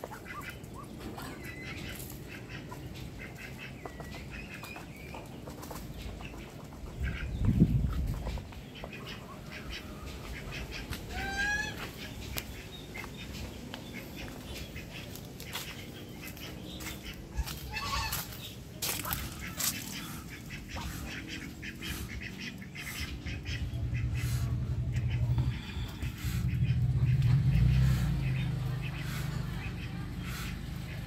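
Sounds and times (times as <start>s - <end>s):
domestic waterfowl calling: 0.0s - 31.0s.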